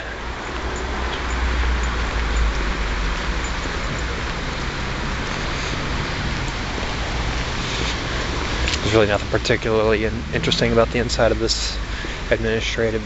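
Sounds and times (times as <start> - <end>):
low wavering rumble: 8.8 - 11.8.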